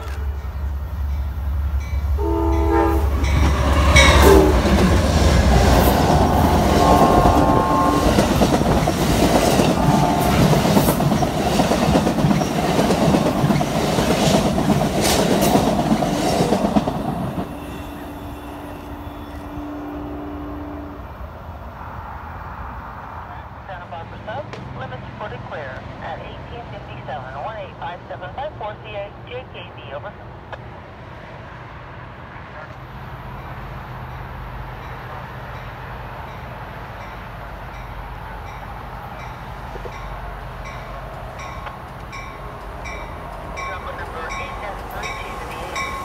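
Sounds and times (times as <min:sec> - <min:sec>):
train wheels rushing on rail: 0:00.0 - 0:20.0, 0:30.5 - 0:46.0
low steady horn-like tone: 0:02.2 - 0:04.7, 0:06.6 - 0:08.4, 0:09.6 - 0:10.9, 0:17.4 - 0:21.2
train horn blast: 0:02.2 - 0:05.0, 0:05.6 - 0:08.7, 0:09.4 - 0:11.1, 0:17.3 - 0:21.2.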